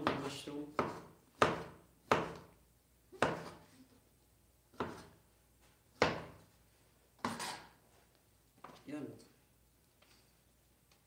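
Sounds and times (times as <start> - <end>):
knife chopping on cutting board: 0.0 - 2.5, 3.2 - 3.6, 4.7 - 5.2, 6.0 - 6.4.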